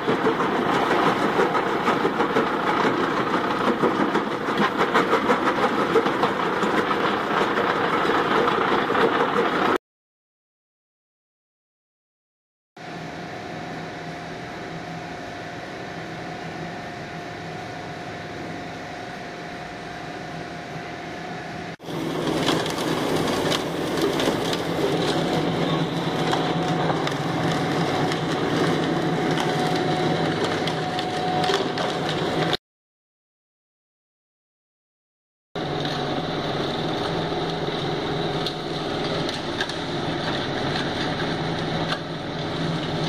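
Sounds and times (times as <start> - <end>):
machine drone with whine: 12.8 - 32.6, 35.6 - 43.0
rock crushing and rattling: 21.8 - 32.6.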